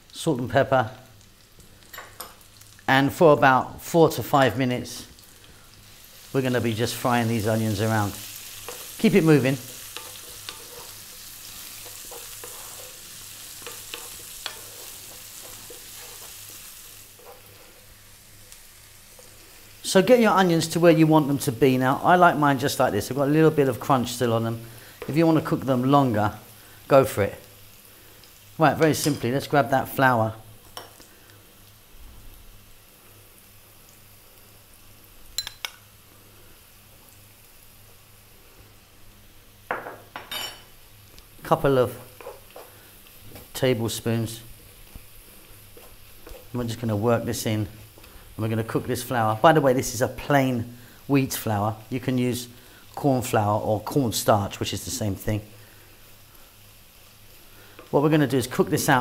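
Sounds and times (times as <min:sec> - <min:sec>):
onion sizzling in oil: 0:00.0 - 0:59.0
wooden spatula scraping pan: 0:09.8 - 0:17.8.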